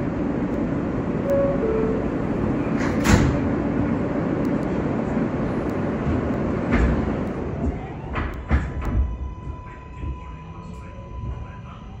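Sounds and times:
steady hum inside train car: 0.0s - 12.0s
two-note door chime: 1.3s - 2.6s
sliding doors shutting with thud: 2.6s - 3.9s.

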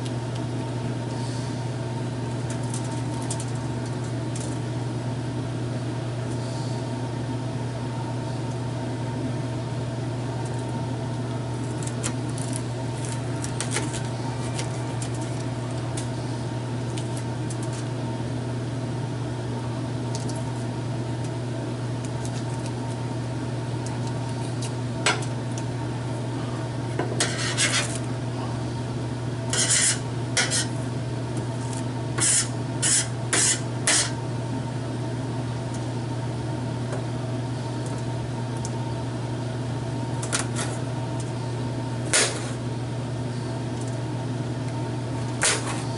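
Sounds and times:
low machine hum: 0.0s - 45.9s
knife scraping: 27.2s - 28.0s, 29.5s - 30.8s, 32.2s - 34.2s.

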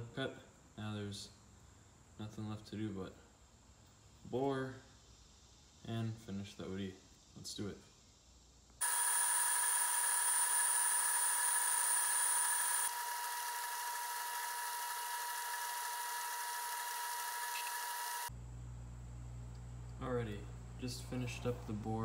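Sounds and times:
metal lathe whine: 8.8s - 18.3s.

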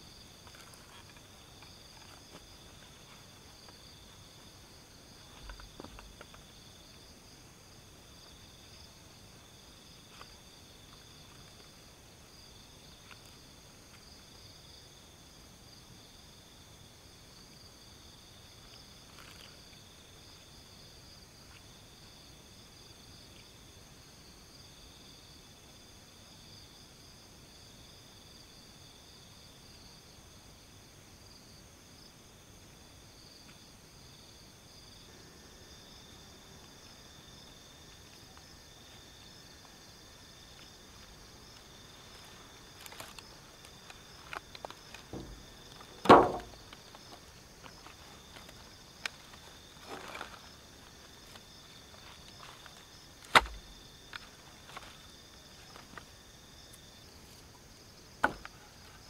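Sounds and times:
crickets trilling: 0.0s - 59.0s
footsteps and knocks: 43.8s - 48.7s
firewood bundle set down: 44.3s - 47.1s, 52.4s - 55.0s.

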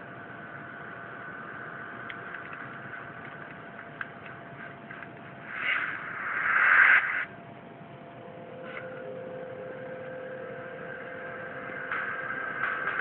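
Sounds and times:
steady hum with held tones: 0.0s - 13.0s
loud noisy burst: 5.4s - 7.3s.

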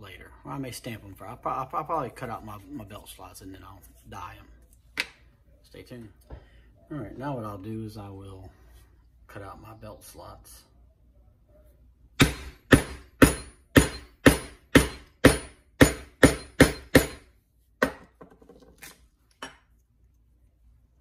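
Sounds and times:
maul striking metal punch: 12.2s - 18.1s.

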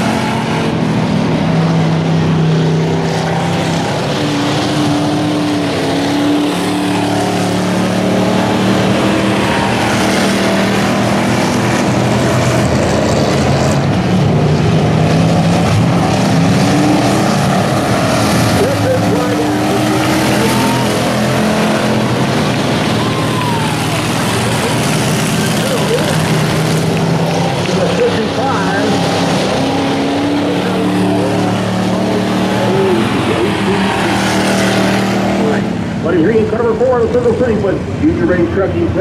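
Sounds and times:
stock car engines running: 0.0s - 39.0s.

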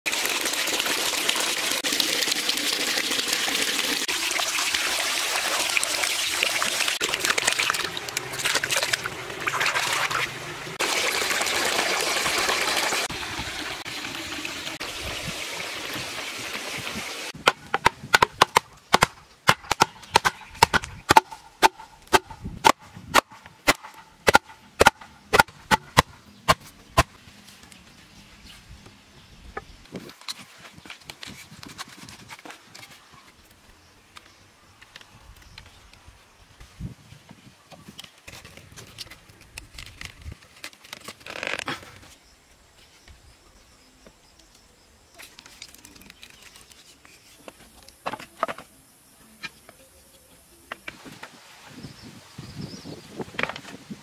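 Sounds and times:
water splashing down stone cascade: 0.1s - 17.4s
hammer driving wooden stakes: 17.4s - 27.1s.

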